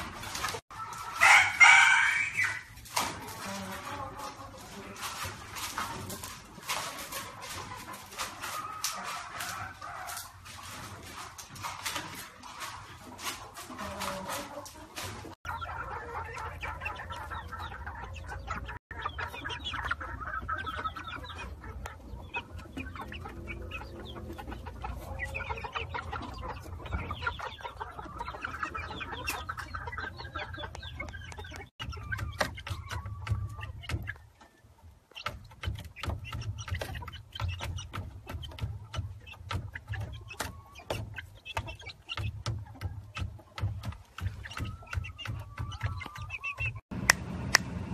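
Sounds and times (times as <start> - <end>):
chicks clucking and peeping: 0.0 - 47.9.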